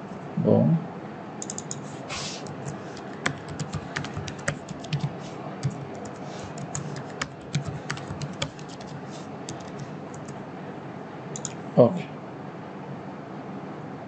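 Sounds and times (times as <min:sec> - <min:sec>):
keyboard keystroke clicks: 0:01.4 - 0:01.8, 0:11.4 - 0:11.6.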